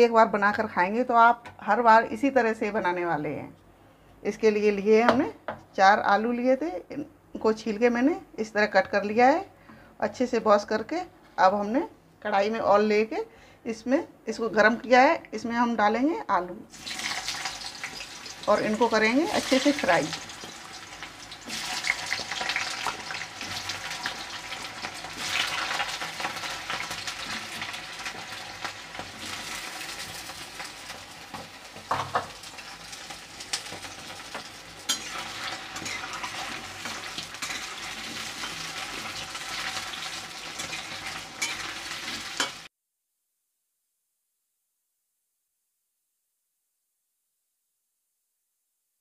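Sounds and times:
potatoes sizzling in oil: 16.7 - 42.7.

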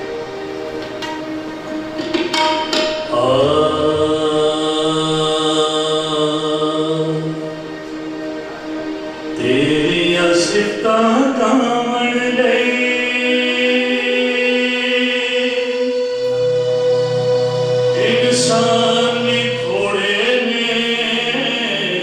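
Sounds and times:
man singing into microphone: 2.9 - 7.8, 9.4 - 16.2, 17.8 - 22.0.

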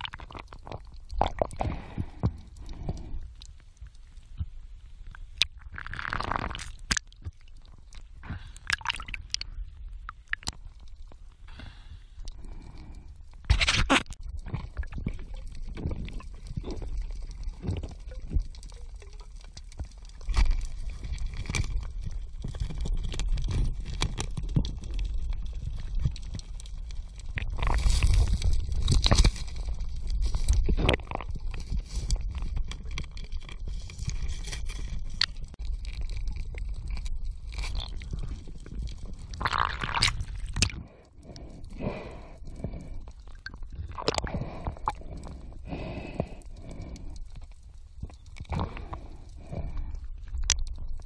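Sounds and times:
scattered underwater clicks: 0.0 - 51.0
water gurgling underwater: 35.0 - 41.0, 41.9 - 45.9.

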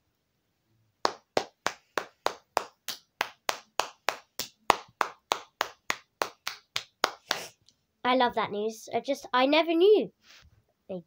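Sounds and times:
girl clapping hands: 1.0 - 7.5.

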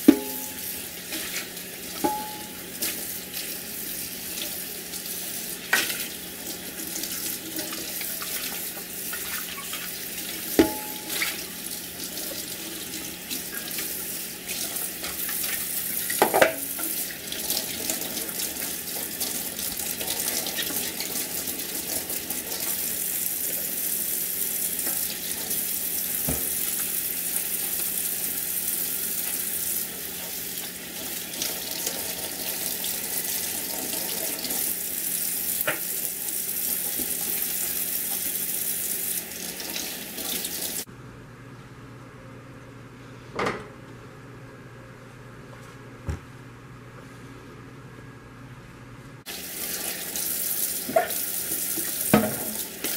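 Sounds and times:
tap water splashing into sink: 26.2 - 26.9, 35.6 - 35.9, 50.8 - 52.9.

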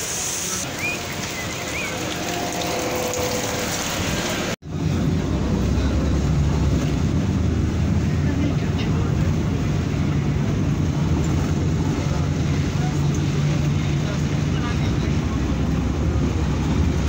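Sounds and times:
heavy rain hissing: 0.0 - 4.6
bus engine rumbling: 0.0 - 17.0.

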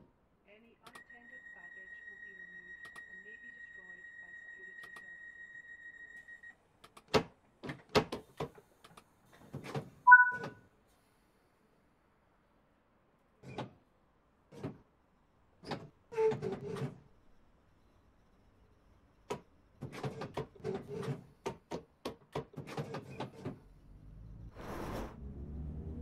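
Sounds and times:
train door clicks and knocks: 6.9 - 8.6, 19.3 - 23.6.

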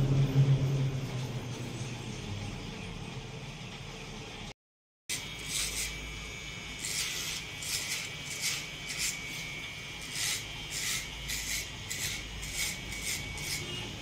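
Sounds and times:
rasping hair cutting strokes: 5.1 - 14.0.

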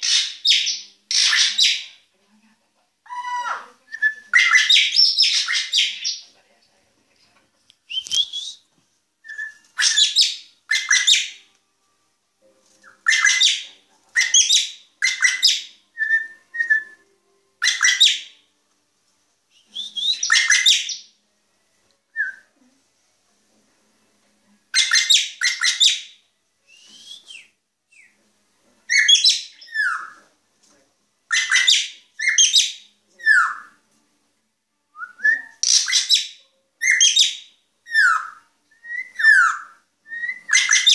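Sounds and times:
bird harsh scratchy song: 0.0 - 1.8, 9.3 - 11.4, 12.8 - 13.6, 20.0 - 21.1, 35.6 - 37.4.

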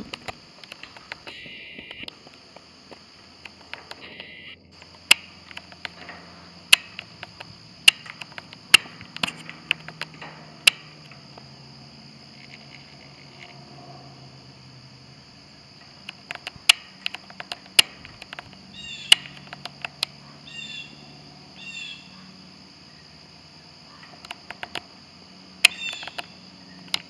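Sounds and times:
sharp clicks: 0.0 - 11.5, 15.7 - 20.2, 24.0 - 24.9, 25.6 - 27.0
insect chorus buzzing: 0.0 - 27.0.

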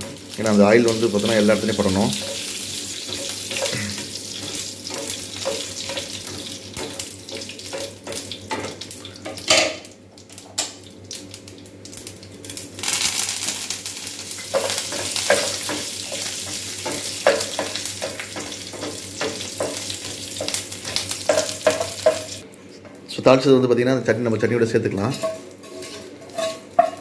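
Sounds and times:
loud sizzle in hot oil: 0.0 - 22.4, 25.0 - 27.0
seeds crackling in hot oil: 0.0 - 22.5
spatula scraping and knocking pan: 1.4 - 8.8, 14.4 - 22.4, 25.0 - 27.0.

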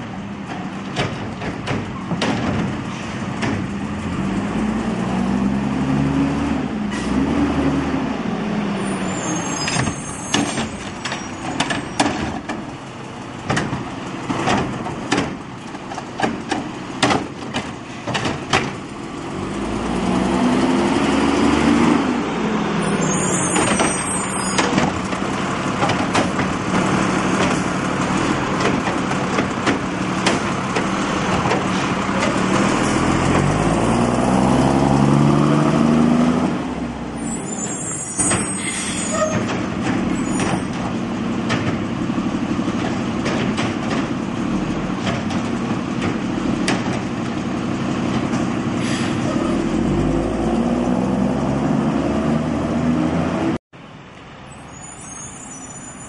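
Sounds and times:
knocks and clatter of carts: 0.0 - 4.2, 9.6 - 19.7, 23.4 - 34.1, 38.2 - 48.7
garbage truck diesel engine: 0.0 - 56.0.

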